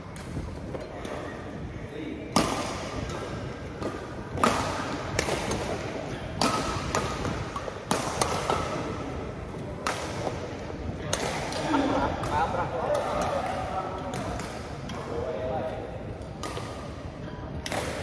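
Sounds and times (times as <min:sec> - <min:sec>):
rackets hitting shuttlecock: 0:00.1 - 0:01.6, 0:02.3 - 0:15.2, 0:16.1 - 0:17.0, 0:17.6 - 0:18.0.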